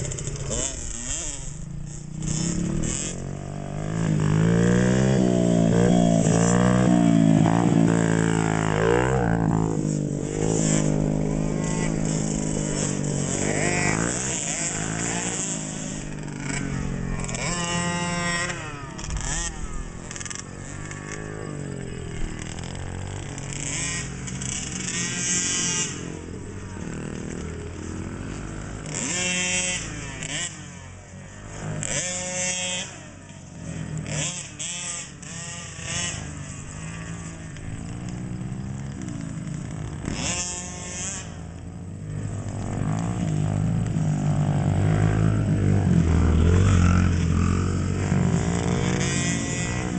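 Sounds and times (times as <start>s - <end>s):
dirt bike engines revving: 0.0s - 49.9s.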